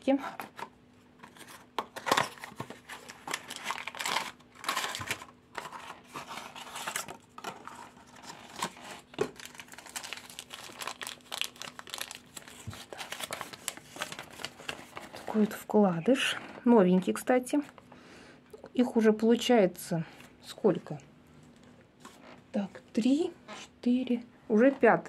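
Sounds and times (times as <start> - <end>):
plastic wrapper crinkling: 1.2 - 15.7.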